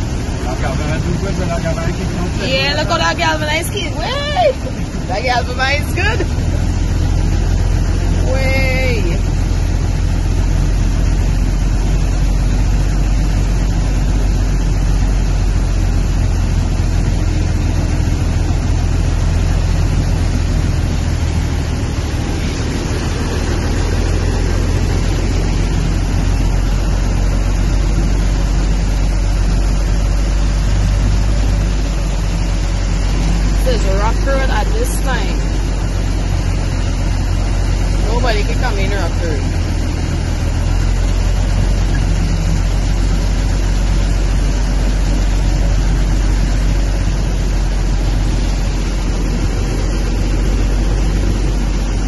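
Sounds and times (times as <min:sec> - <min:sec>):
low engine rumble: 0:00.0 - 0:52.0
rushing road and water noise: 0:00.0 - 0:52.0.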